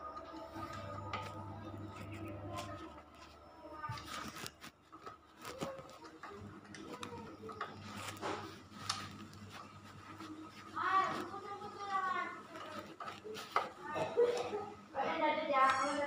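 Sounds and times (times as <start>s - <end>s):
low hum: 0.0s - 5.6s.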